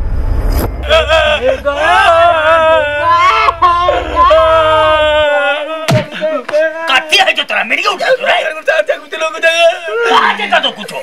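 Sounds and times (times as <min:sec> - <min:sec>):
low rumble: 0:00.0 - 0:05.8
person wailing loudly: 0:00.8 - 0:07.0.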